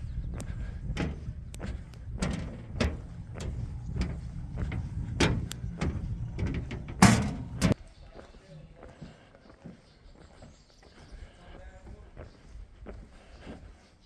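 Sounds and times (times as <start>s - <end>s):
steady low rumble: 0.0s - 7.8s
footsteps walking hollow thuds: 0.0s - 14.0s.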